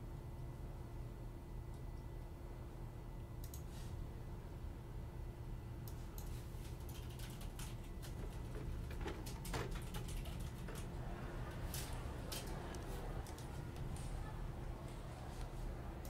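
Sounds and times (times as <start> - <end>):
low steady hum: 0.0 - 16.0
keyboard typing clicks: 3.4 - 3.7, 5.8 - 10.9, 11.7 - 13.9.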